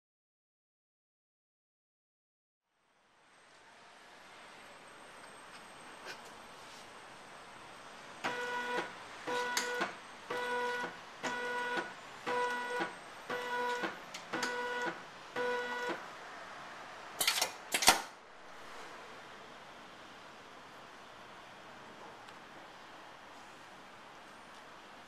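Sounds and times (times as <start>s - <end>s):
sharp mechanical clicks: 17.2s - 18.2s.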